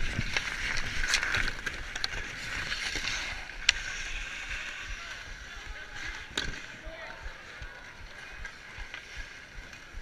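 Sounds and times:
skate blades scraping ice: 0:00.0 - 0:06.8.

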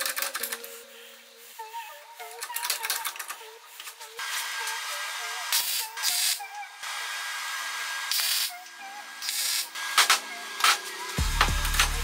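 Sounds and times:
welding arc crackling and hissing: 0:03.7 - 0:06.4, 0:07.0 - 0:08.6, 0:09.2 - 0:12.0
music with deep beat: 0:10.1 - 0:12.0.

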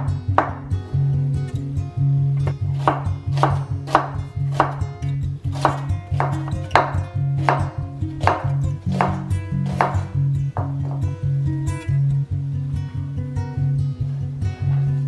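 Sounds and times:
knife chopping on cutting board: 0:00.4 - 0:00.6, 0:02.5 - 0:04.9, 0:05.5 - 0:11.0.

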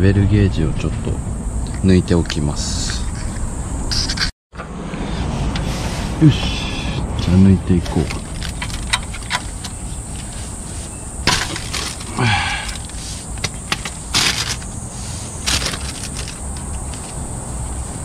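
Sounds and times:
plastic bag rustling: 0:08.0 - 0:17.2.

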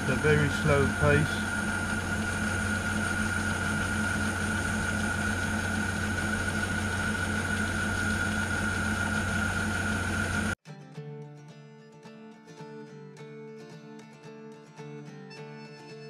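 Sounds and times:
low hum: 0:00.0 - 0:10.6
metal lathe high whine: 0:00.0 - 0:10.6.

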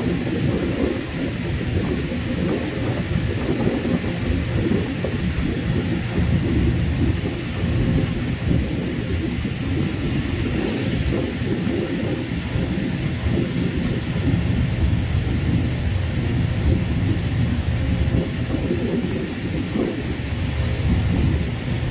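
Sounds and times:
jet engines rumbling: 0:00.0 - 0:21.9.

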